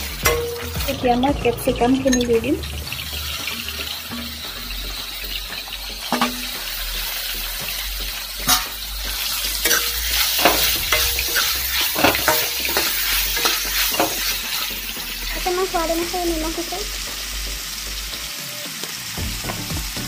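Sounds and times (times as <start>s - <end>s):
vegetables sizzling in oil: 0.0s - 20.0s
metal spoon scraping a pan: 3.2s - 7.3s, 8.4s - 15.4s.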